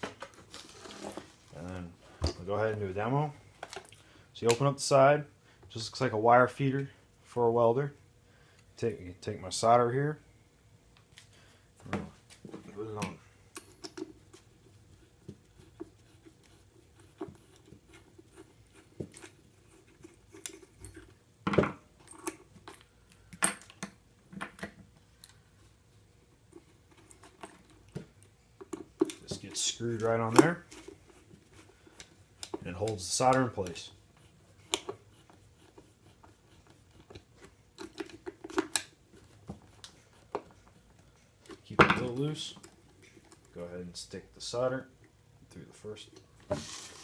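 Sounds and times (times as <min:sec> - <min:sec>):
small parts clicking and knocking: 0:37.0 - 0:39.0.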